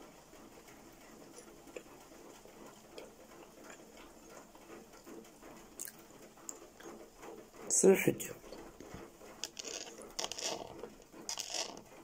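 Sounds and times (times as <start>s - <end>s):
light dripping ticks: 0.5s - 7.4s.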